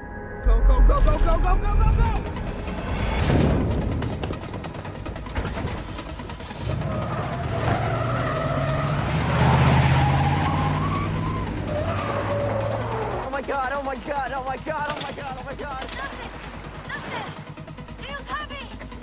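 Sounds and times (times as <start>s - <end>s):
van engines revving hard: 5.1s - 14.3s
tyres squealing: 6.7s - 13.4s.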